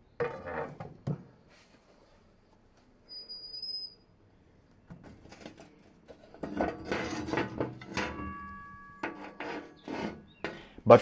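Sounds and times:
metal tools clanking and scraping: 0:05.3 - 0:10.8
metallic ring: 0:07.5 - 0:10.0.

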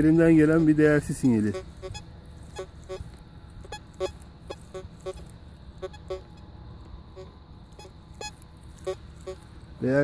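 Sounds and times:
metal detector low beeps: 0:01.4 - 0:06.4, 0:07.1 - 0:09.4.

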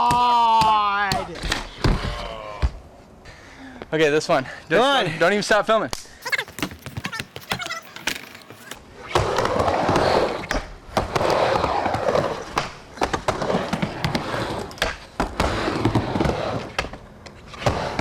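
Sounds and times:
skateboard trucks grinding: 0:07.1 - 0:18.0
skateboard wheels rolling on ramp: 0:09.0 - 0:18.0.

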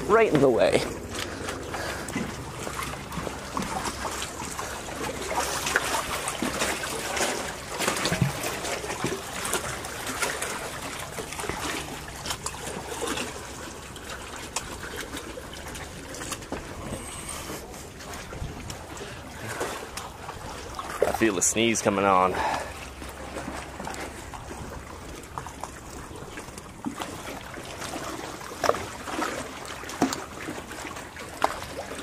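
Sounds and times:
water lapping against boat hulls: 0:00.0 - 0:32.0.

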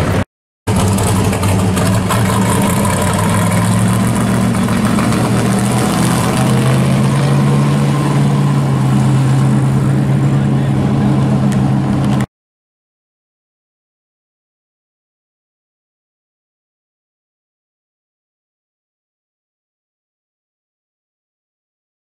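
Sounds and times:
car engine driving past: 0:00.0 - 0:12.3.

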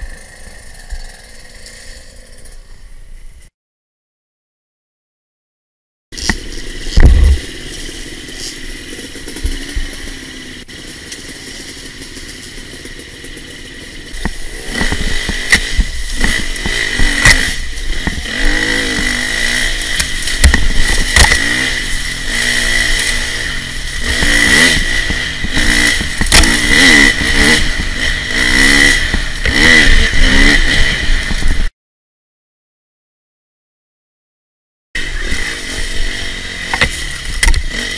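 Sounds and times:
dirt bike engine revving: 0:00.0 - 0:02.8, 0:06.2 - 0:31.7, 0:35.0 - 0:37.9
knocks and clatter from bike: 0:06.2 - 0:19.2, 0:19.8 - 0:21.7, 0:24.0 - 0:31.7, 0:36.7 - 0:37.9.

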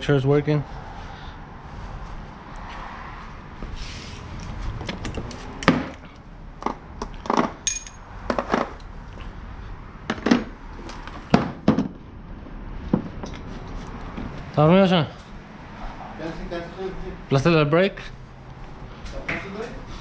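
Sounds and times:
metallic clink: 0:07.6 - 0:08.0.

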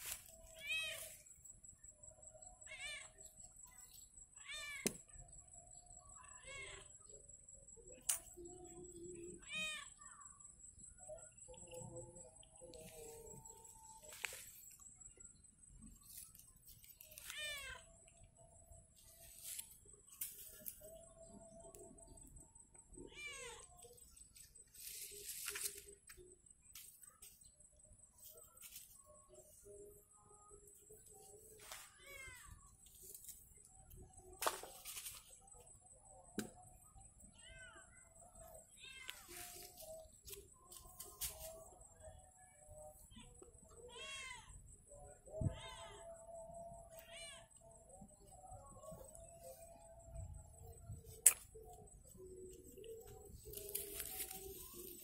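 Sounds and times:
cat meowing: 0:17.3 - 0:17.8.

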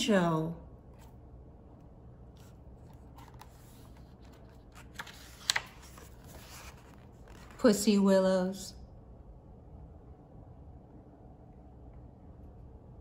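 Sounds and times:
paper rustling: 0:02.3 - 0:07.7
paper snaps: 0:04.2 - 0:06.2.

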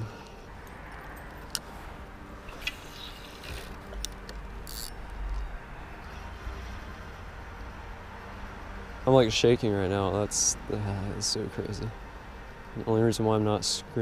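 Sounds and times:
fishing line hissing out: 0:02.5 - 0:03.8
fishing reel clicks: 0:02.6 - 0:05.4.

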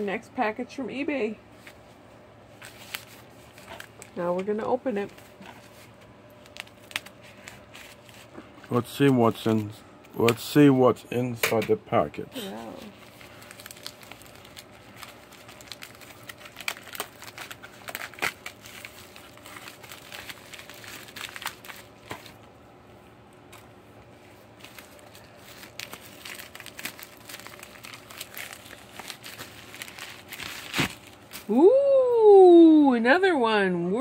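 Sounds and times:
plastic mailer crinkling: 0:02.6 - 0:09.7, 0:12.4 - 0:22.4, 0:24.2 - 0:31.5.

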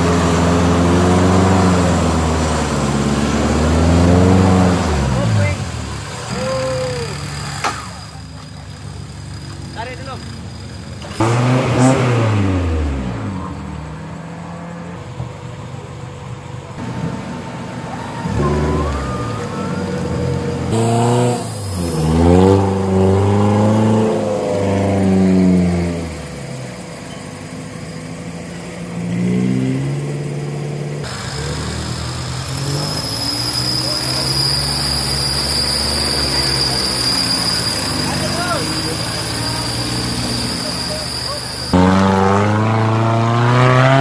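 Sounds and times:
engine revving hard: 0:00.0 - 0:08.2, 0:11.0 - 0:14.5, 0:18.2 - 0:26.5, 0:31.0 - 0:44.0.

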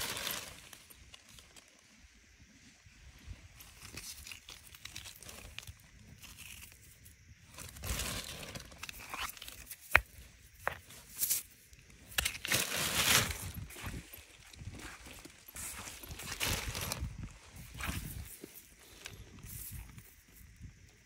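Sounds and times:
soil and gravel scraping: 0:03.6 - 0:20.1.

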